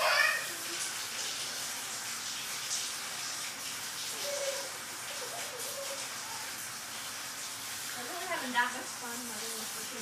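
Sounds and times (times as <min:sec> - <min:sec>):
baby vocal sounds: 0:00.0 - 0:00.9, 0:04.2 - 0:06.0
faucet water splashing into tub: 0:00.0 - 0:10.0.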